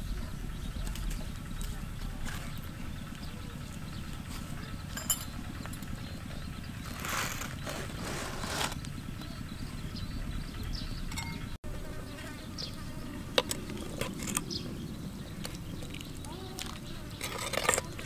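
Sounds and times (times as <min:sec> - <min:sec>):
metal spoon clinking on clay pot: 0:04.9 - 0:05.4, 0:11.1 - 0:11.5, 0:17.1 - 0:18.0
lid scraping off clay pot: 0:06.9 - 0:08.8.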